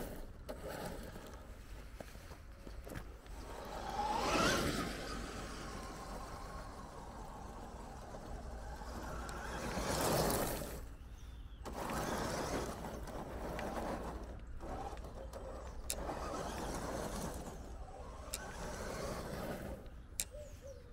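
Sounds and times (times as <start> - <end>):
toy truck tyres crunching gravel: 0.0 - 20.9
small stone ticks: 5.8 - 10.9, 11.6 - 20.4.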